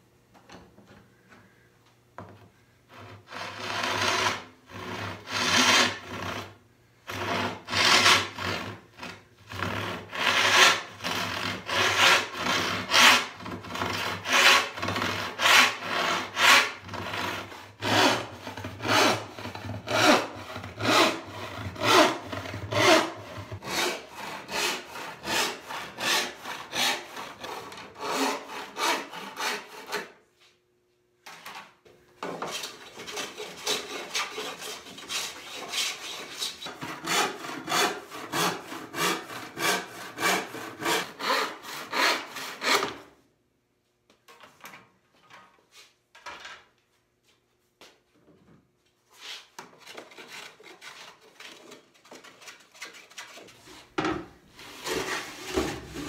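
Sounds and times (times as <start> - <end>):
handsaw cutting wood: 2.9 - 30.2, 32.4 - 43.1, 49.2 - 53.5, 54.6 - 56.0.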